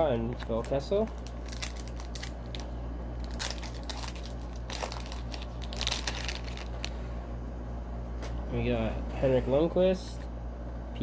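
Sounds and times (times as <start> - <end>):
low electrical hum: 0.0 - 11.0
cards rustling and scraping: 0.3 - 7.0.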